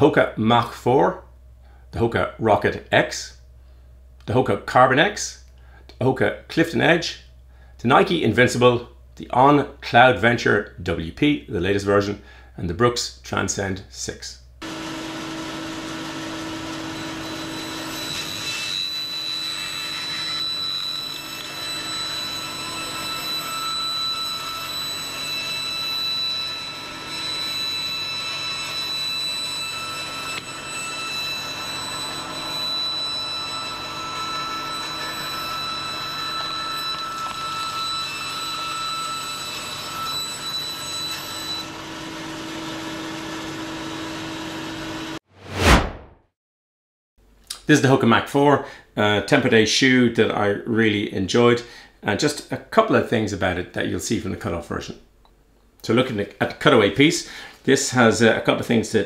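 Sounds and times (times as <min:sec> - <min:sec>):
band saw cutting: 0:14.6 - 0:45.2
high-pitched saw whine: 0:14.6 - 0:45.2.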